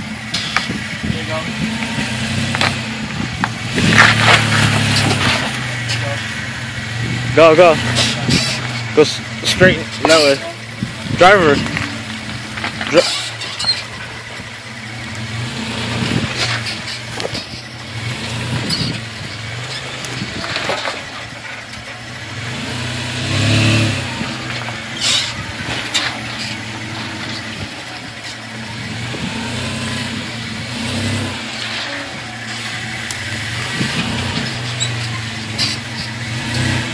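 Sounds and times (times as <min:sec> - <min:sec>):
engine running at low revs: 0:00.0 - 0:36.9
tyres knocking and crunching on rock: 0:01.8 - 0:05.8, 0:09.7 - 0:14.4.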